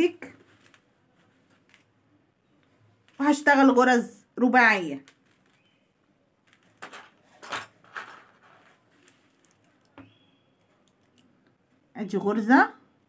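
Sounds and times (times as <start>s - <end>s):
beads clicking together: 5.0s - 5.7s.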